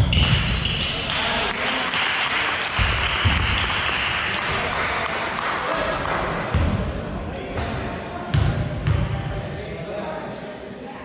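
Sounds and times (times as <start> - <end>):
spectators applauding: 0.3 - 6.4.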